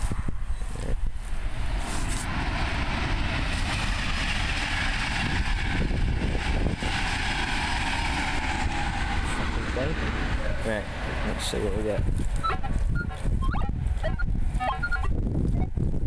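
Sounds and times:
wind on microphone: 0:00.0 - 0:16.0.

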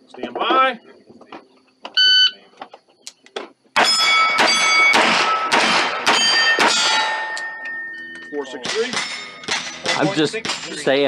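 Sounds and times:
electronic start beep: 0:02.0 - 0:02.4
pistol shots: 0:03.8 - 0:07.4, 0:08.6 - 0:09.8
steel target plates ringing: 0:03.8 - 0:11.0.

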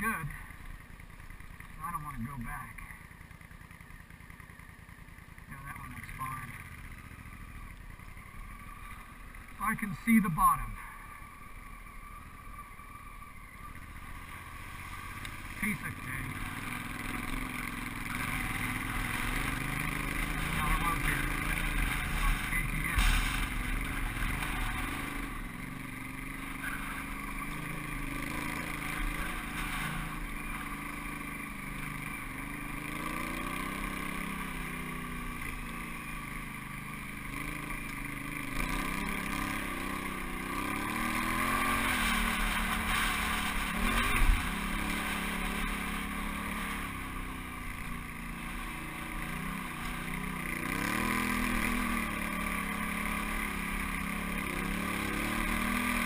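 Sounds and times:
motorcycle engine revving: 0:00.0 - 0:56.0
sharp thump: 0:22.9 - 0:23.7.

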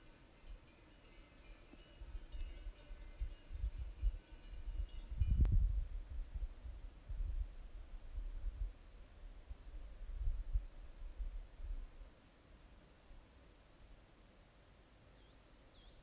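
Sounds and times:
wind buffeting microphone: 0:02.0 - 0:08.8
faint bird chirps and whistles: 0:05.4 - 0:12.2, 0:15.1 - 0:16.0.

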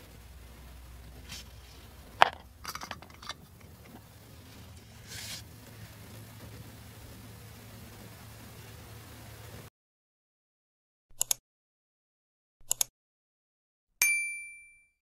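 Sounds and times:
soft brushing rustle: 0:00.8 - 0:06.6
plastic toy pieces clicking: 0:02.2 - 0:04.0.

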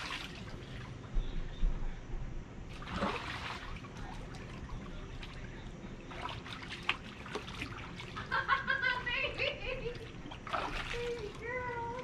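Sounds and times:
small water splashes: 0:00.0 - 0:01.0, 0:02.7 - 0:09.0, 0:09.8 - 0:12.0
water sloshing in a pool: 0:00.0 - 0:01.1, 0:02.7 - 0:12.0.

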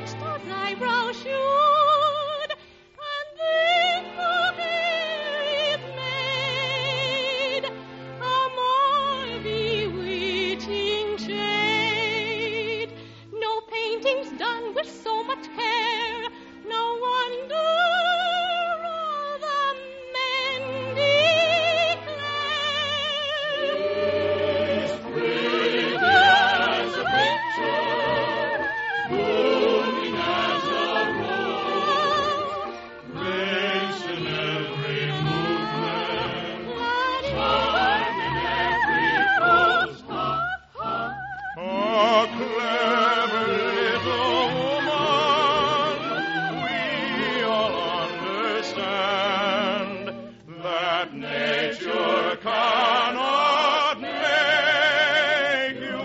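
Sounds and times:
choir singing: 0:00.0 - 0:12.9, 0:14.0 - 0:56.0
singers with wide vibrato: 0:00.0 - 0:56.0
orchestral accompaniment: 0:20.3 - 0:56.0.

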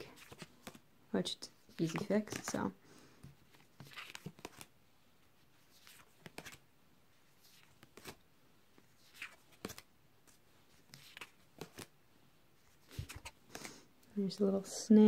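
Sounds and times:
cards swishing and tapping: 0:00.0 - 0:00.8, 0:01.7 - 0:04.7, 0:05.6 - 0:06.6, 0:07.4 - 0:08.2, 0:08.8 - 0:11.9, 0:12.7 - 0:13.8.

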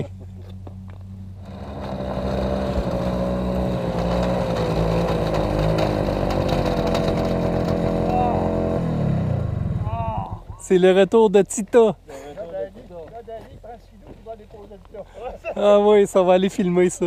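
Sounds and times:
snowmobile engine: 0:01.4 - 0:10.7.

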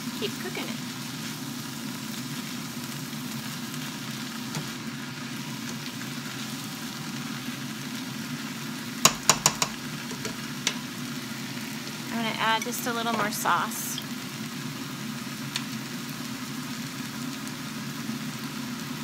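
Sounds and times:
food sizzling in a frying pan: 0:00.0 - 0:19.0
spatula stirring food: 0:09.0 - 0:10.8
spatula tapping a pan: 0:09.0 - 0:10.8.

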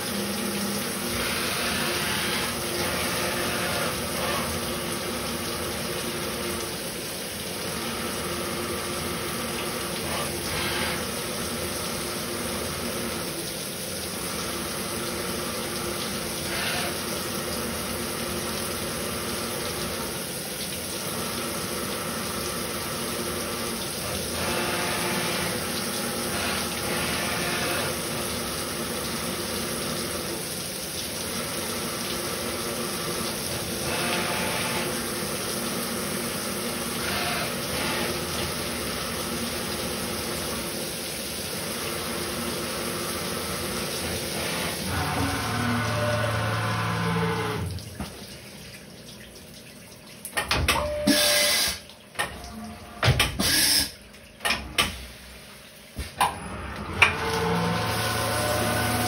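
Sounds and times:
milling machine cutting: 0:00.0 - 0:05.9, 0:09.8 - 0:11.3, 0:16.4 - 0:17.0, 0:24.0 - 0:28.4, 0:33.3 - 0:35.4, 0:36.6 - 0:38.7, 0:43.4 - 0:47.7, 0:56.5 - 0:59.0.

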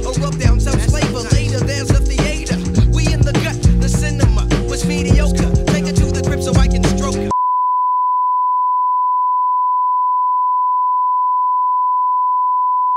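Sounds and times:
music: 0:00.0 - 0:07.3.

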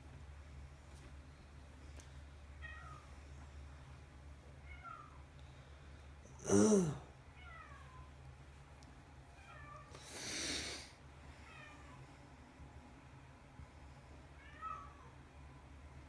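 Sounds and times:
cat meowing: 0:14.4 - 0:15.1.

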